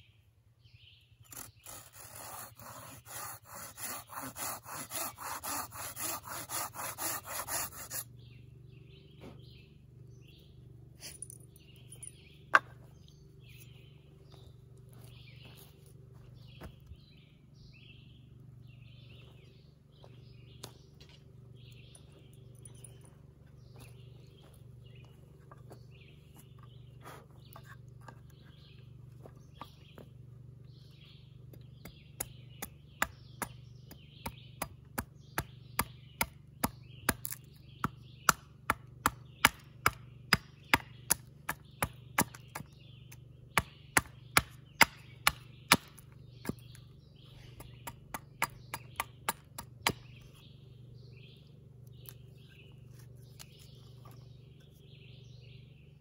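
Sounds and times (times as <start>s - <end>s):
birds chirping: 0.0s - 56.0s
axe chopping wood: 12.5s - 12.9s, 31.5s - 46.8s, 47.6s - 50.2s.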